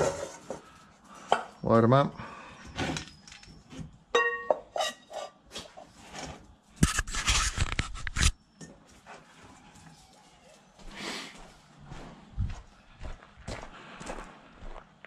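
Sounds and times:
metal bowls clinking and scraping: 0.0s - 1.6s, 2.9s - 7.8s.

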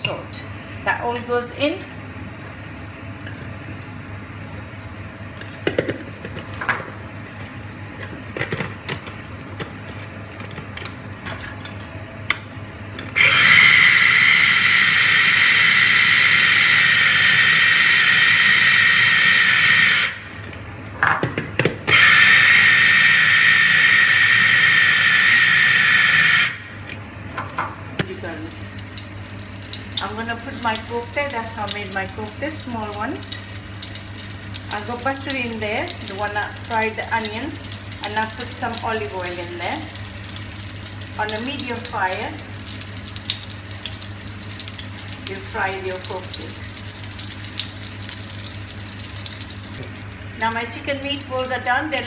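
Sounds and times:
food chopper motor whining: 13.2s - 20.3s, 21.9s - 26.7s.

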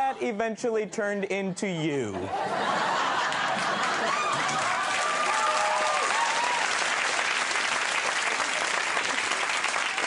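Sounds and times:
people laughing: 0.0s - 4.8s, 8.3s - 9.4s
audience applauding: 3.1s - 10.0s.

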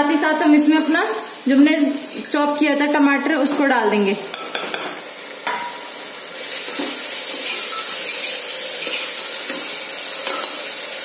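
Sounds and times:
food sizzling in hot oil: 0.0s - 11.0s
spoon stirring: 6.7s - 10.6s.

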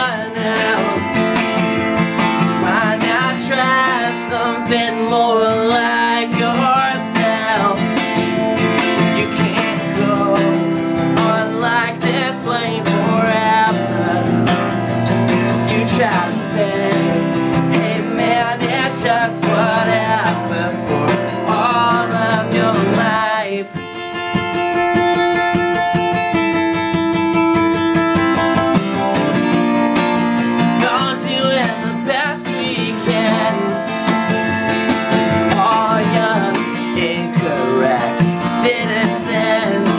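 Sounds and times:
man singing: 0.0s - 25.5s, 30.4s - 39.9s
acoustic guitar strumming: 0.0s - 39.9s.

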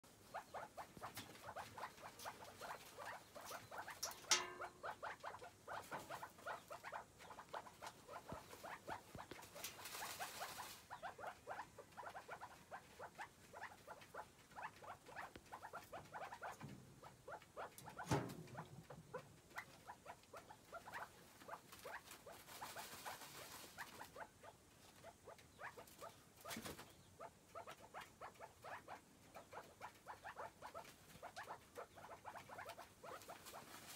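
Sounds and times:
birds scratching in dirt: 0.1s - 27.0s, 29.5s - 33.9s.

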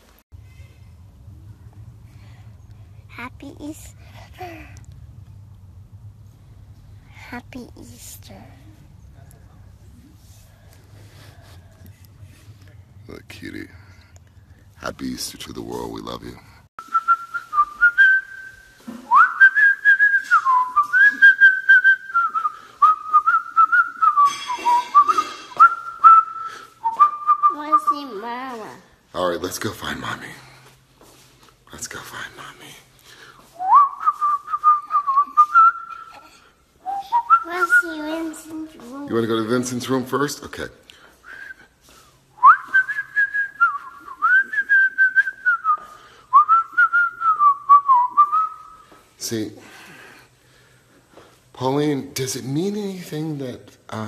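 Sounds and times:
man whistling a tune: 16.8s - 27.6s, 33.6s - 36.2s, 36.8s - 37.9s, 41.2s - 49.0s.

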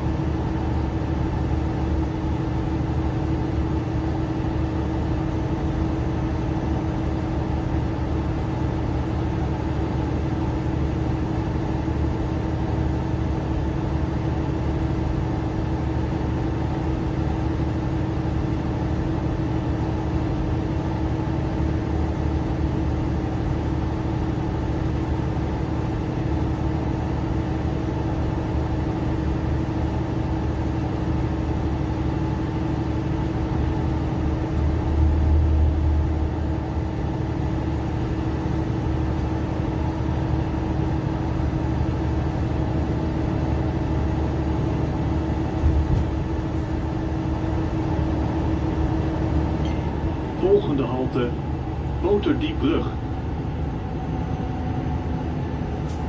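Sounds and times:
bus engine drone: 0.0s - 56.0s
road rumble: 34.1s - 37.2s, 44.0s - 56.0s.

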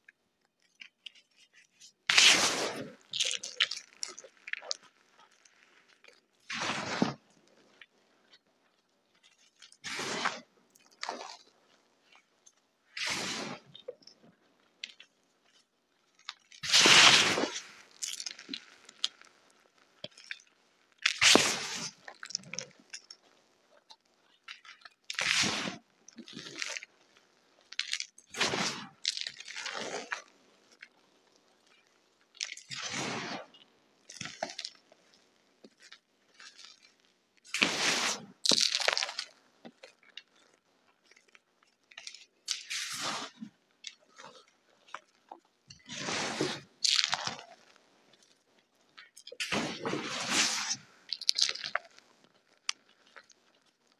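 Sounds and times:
hands crushing chalk: 0.6s - 8.4s, 16.2s - 23.3s, 37.5s - 40.4s, 45.0s - 47.8s, 49.1s - 53.6s.

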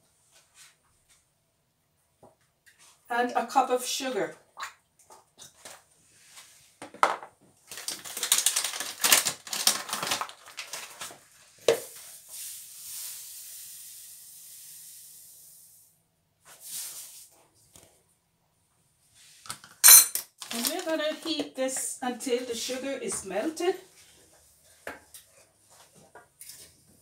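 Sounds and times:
paper bag rustling: 7.7s - 11.3s, 20.4s - 21.4s.

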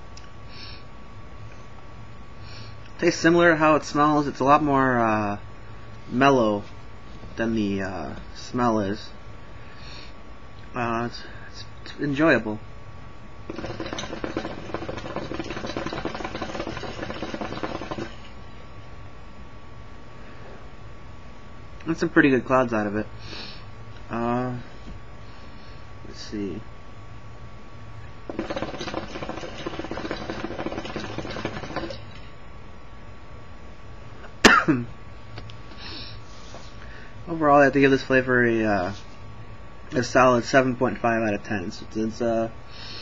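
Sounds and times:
hookah bubbling: 13.4s - 18.4s, 28.2s - 32.2s.

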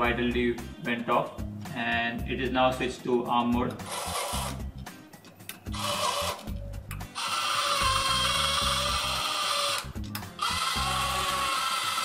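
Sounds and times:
background music: 0.0s - 12.0s
gear motor whirring: 3.8s - 4.6s, 5.7s - 6.5s, 7.2s - 12.0s.

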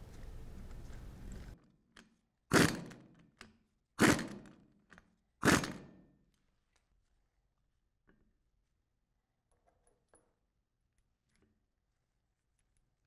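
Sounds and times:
impact wrench bursts: 2.5s - 3.0s, 4.0s - 4.6s, 5.4s - 6.0s.

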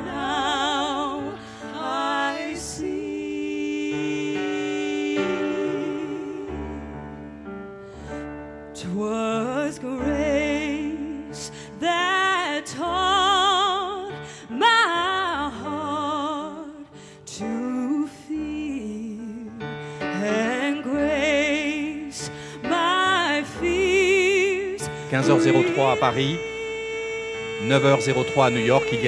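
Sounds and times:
woman singing a sad song: 0.0s - 6.8s, 8.8s - 29.0s
sustained accompaniment chords: 24.8s - 29.0s.

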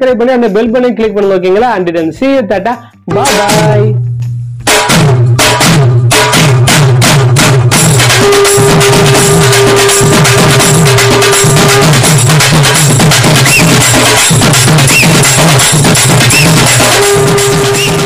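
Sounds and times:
steady drum beat: 0.0s - 18.0s
repeating bass line: 2.6s - 5.3s, 8.6s - 18.0s.

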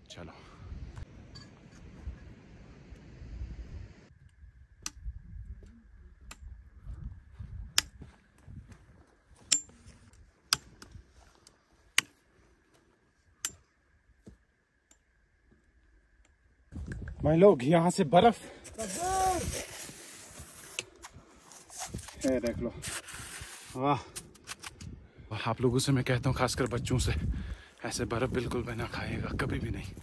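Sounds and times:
low rumble of footsteps: 5.1s - 13.0s
trekking poles clicking on rocks: 9.4s - 12.2s.

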